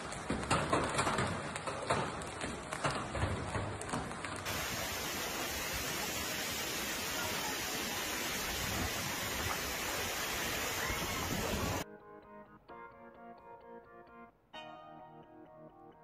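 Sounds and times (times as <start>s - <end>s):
heavy rain and hail pelting pavement: 0.0s - 11.8s.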